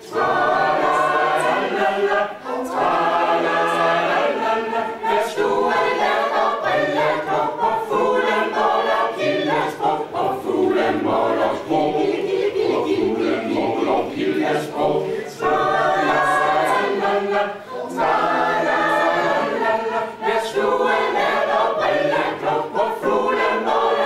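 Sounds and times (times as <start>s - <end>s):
mixed choir singing: 0.0s - 24.0s.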